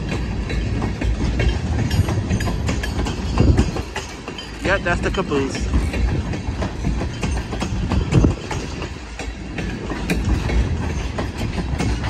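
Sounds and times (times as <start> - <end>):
train rumble: 0.0 - 12.0
train wheels clicking on rails: 0.0 - 12.0.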